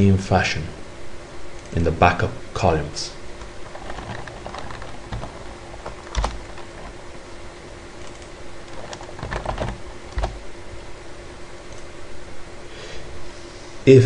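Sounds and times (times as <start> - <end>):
faint steady hum: 0.0 - 14.0
keyboard keystrokes: 3.4 - 7.0, 8.0 - 10.4.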